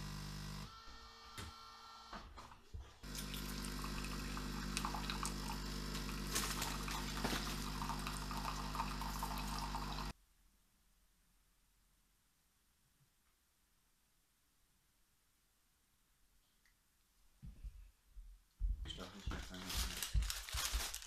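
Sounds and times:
coffee machine pump humming: 0.0s - 10.1s
hot water splashing into cup: 3.0s - 10.1s.

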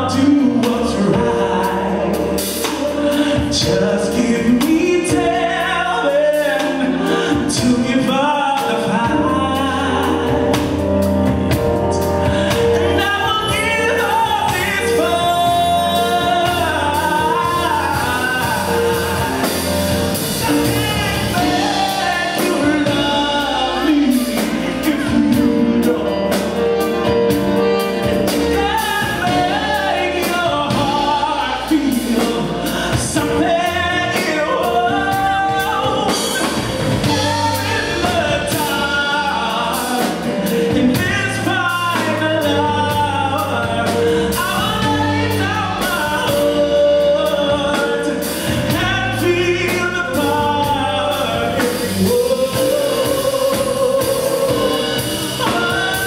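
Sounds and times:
congas: 0.0s - 56.0s
drum kit: 0.0s - 56.0s
electric bass: 0.0s - 56.0s
keyboard chords: 0.0s - 56.0s
saxophone melody: 9.0s - 48.1s.

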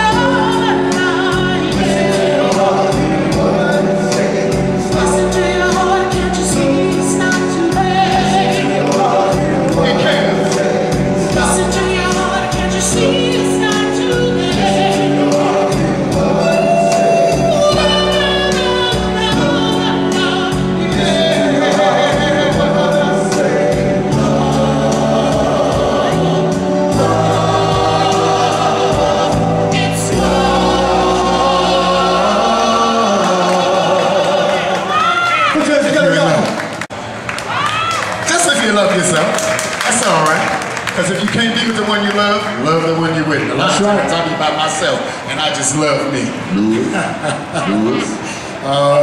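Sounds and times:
bass line: 0.0s - 34.4s
vocal group singing in harmony: 0.0s - 35.4s
live band playing: 0.0s - 37.2s.

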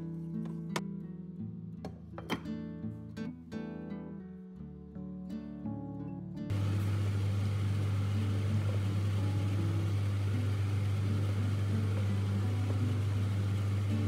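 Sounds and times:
cooker hood fan humming: 6.5s - 14.0s.

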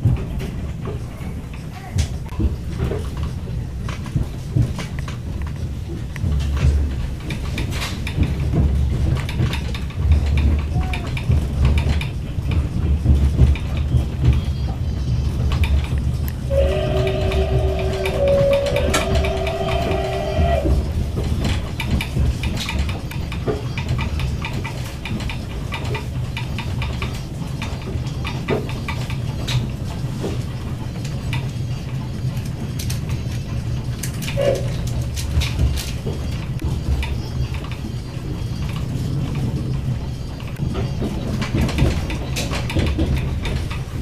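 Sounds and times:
train carriage rumbling: 0.0s - 44.0s
wheels clicking over rail joints: 0.0s - 44.0s
steam locomotive whistle: 16.5s - 21.0s.

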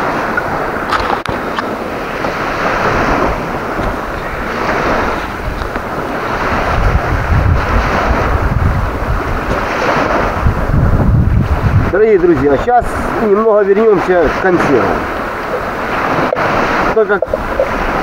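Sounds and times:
waves washing onto sandy shore: 0.0s - 18.0s
wind buffeting microphone: 0.0s - 18.0s.

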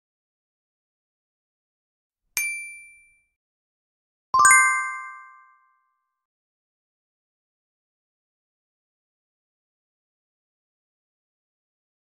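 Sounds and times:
short bright ding: 2.4s - 3.2s
low multi-tone chime: 4.4s - 5.6s.

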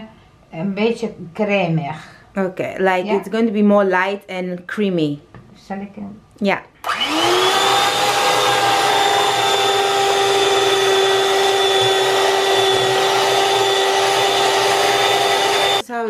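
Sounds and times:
electric hand mixer whirring: 6.8s - 15.8s
beaters whisking in plastic bowl: 7.4s - 15.8s.

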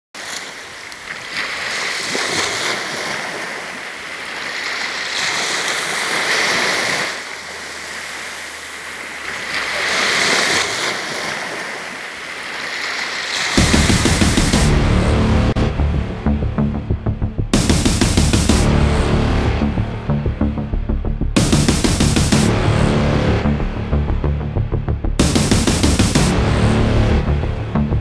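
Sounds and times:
sea waves breaking on beach: 0.2s - 14.4s.

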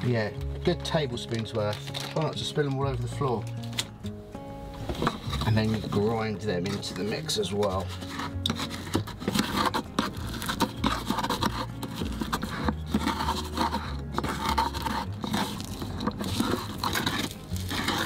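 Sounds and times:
pestle scraping in mortar: 4.8s - 18.0s.

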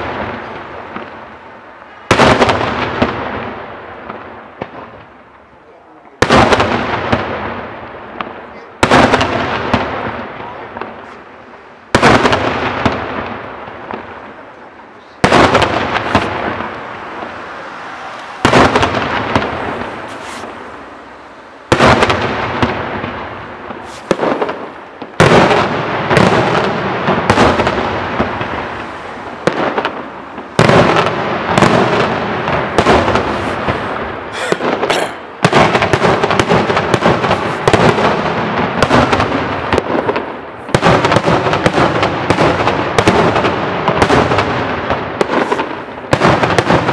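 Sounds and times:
fireworks shells bursting: 15.3s - 20.9s, 21.7s - 40.4s.

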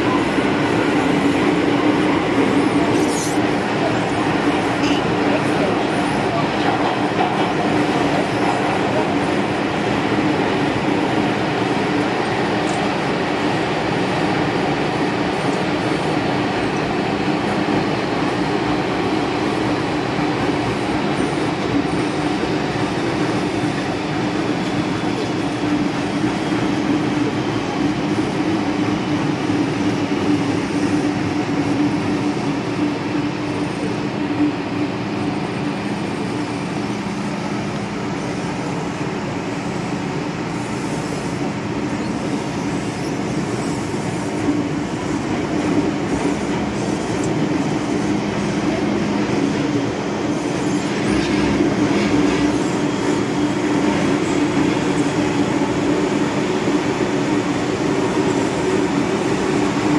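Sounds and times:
train hum: 0.0s - 59.9s
train rolling rumble: 0.0s - 59.9s.

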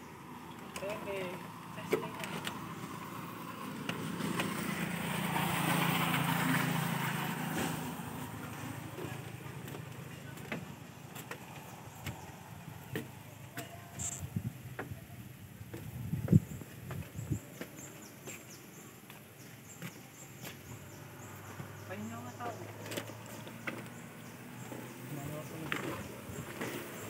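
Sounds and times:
vehicle passing by: 0.2s - 14.2s, 19.6s - 27.0s.

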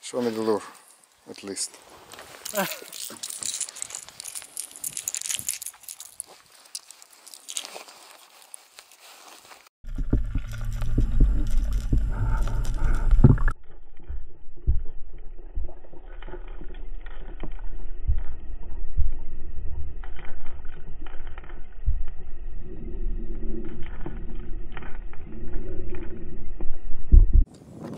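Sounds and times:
muffled underwater water flow: 9.9s - 27.5s.

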